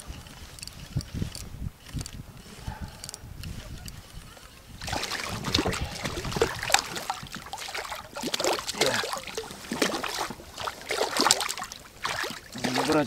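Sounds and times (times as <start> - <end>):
fish splashing in water: 4.8 - 13.0.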